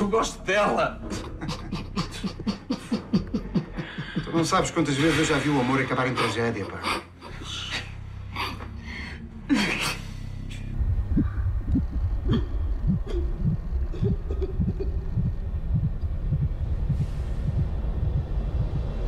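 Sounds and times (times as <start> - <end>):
low rumbling drone: 7.5 - 19.0.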